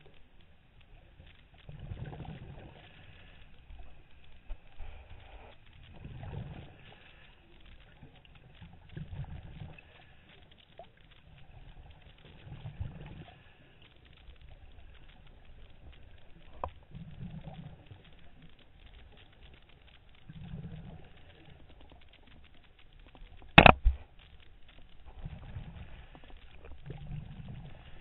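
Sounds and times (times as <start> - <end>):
sharp click: 23.4 - 24.2.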